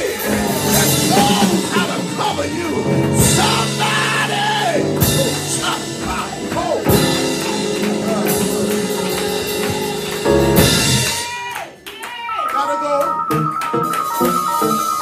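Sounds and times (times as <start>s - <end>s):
keyboard chords: 0.0s - 11.3s, 12.5s - 15.0s
drums and cymbal crashes: 0.0s - 11.4s
preacher shouting: 3.4s - 12.7s.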